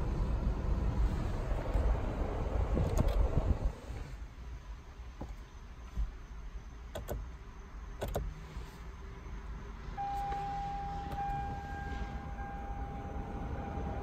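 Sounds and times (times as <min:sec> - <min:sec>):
steady high tone: 0:10.0 - 0:14.0.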